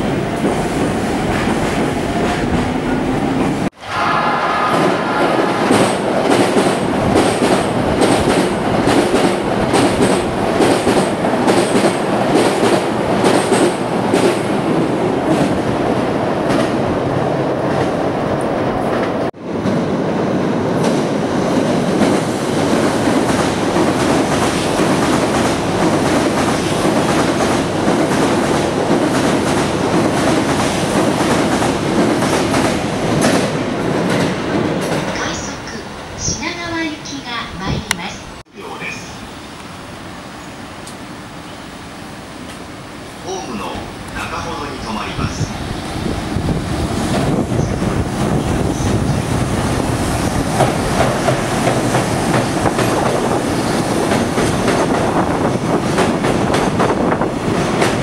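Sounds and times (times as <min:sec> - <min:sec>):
train wheels clacking on rails: 0:04.7 - 0:16.9, 0:20.8 - 0:35.6, 0:47.0 - 0:58.0.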